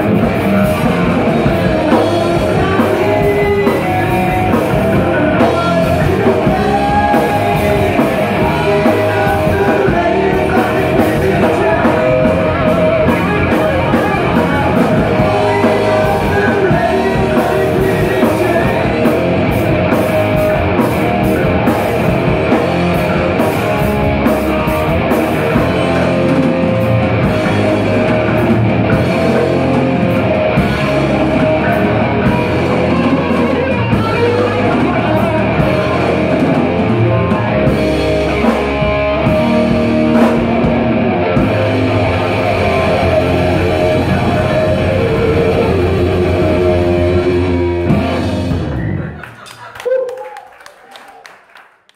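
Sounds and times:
bass guitar: 0:00.0 - 0:49.4
drum kit: 0:00.0 - 0:49.4
electric guitar: 0:00.0 - 0:49.4
man singing into a microphone: 0:01.4 - 0:19.2, 0:31.6 - 0:36.8, 0:42.2 - 0:47.7.

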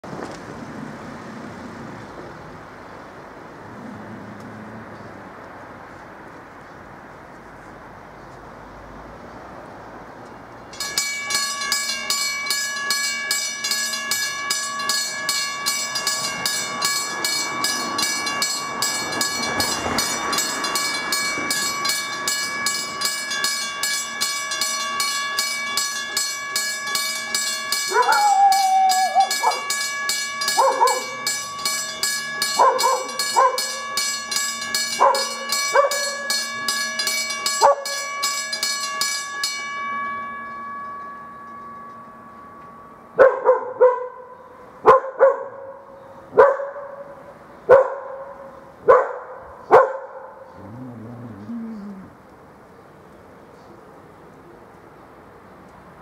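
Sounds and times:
level crossing bell ringing: 0:10.8 - 0:44.3
dog barking: 0:30.6 - 0:31.2, 0:32.6 - 0:33.7, 0:35.0 - 0:36.1, 0:43.2 - 0:50.8.

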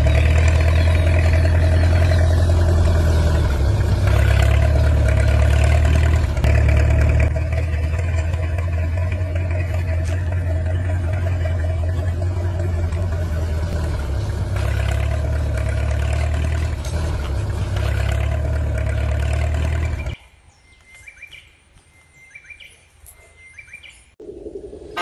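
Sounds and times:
faint bird chirps: 0:19.9 - 0:25.0.

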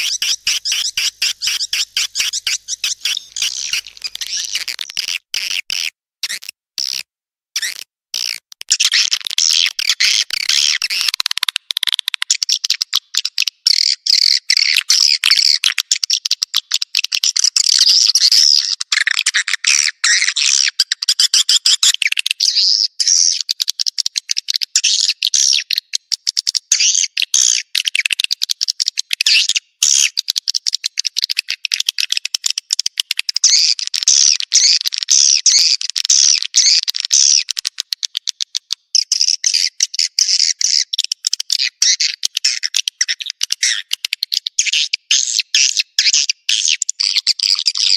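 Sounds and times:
high-pitched bird chirping: 0:00.0 - 0:07.0, 0:39.0 - 0:47.9.

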